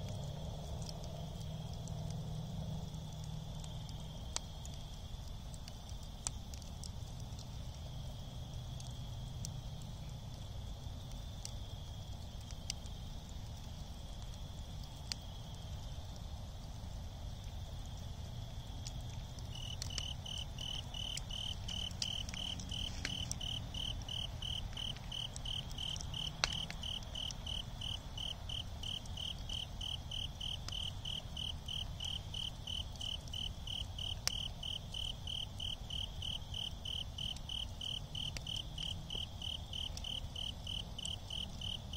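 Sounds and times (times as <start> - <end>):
embers popping: 0.0 - 16.4, 17.1 - 41.9
crickets chirping: 0.1 - 41.9
high insect trill: 19.5 - 41.9.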